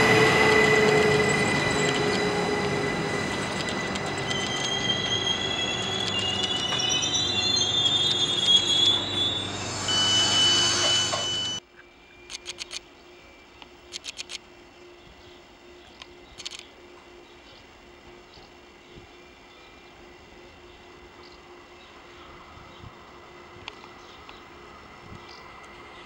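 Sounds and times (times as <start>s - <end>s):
train wheel squeal: 0.0s - 12.6s
electric train rolling past: 0.0s - 13.9s, 14.5s - 26.0s.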